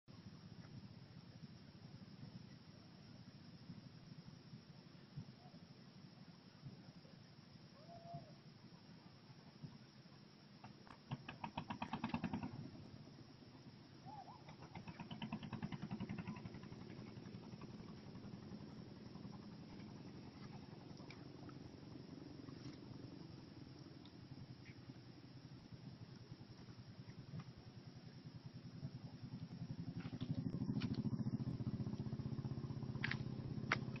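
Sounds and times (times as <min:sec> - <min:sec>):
small engine running: 0:11.1 - 0:13.2, 0:14.3 - 0:34.0.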